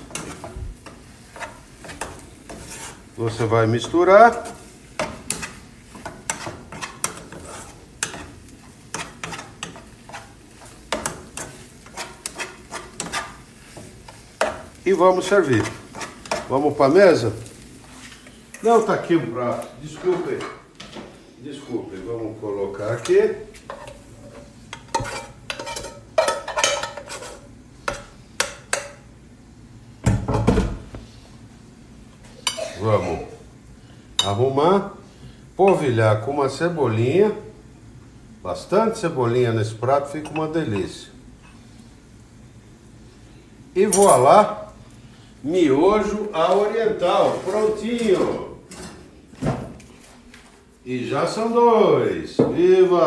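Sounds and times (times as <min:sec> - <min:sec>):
utensil scraping a frying pan: 0:00.0 - 0:16.7, 0:23.0 - 0:28.9.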